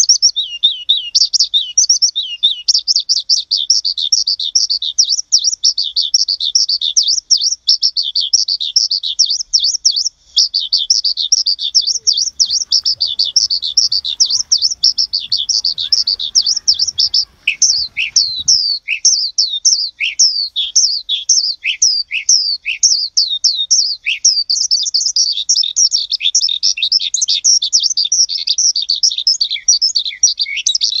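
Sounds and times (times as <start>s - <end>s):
birds chirping rapidly: 0.0s - 31.0s
faint low outdoor rumble: 11.5s - 18.8s.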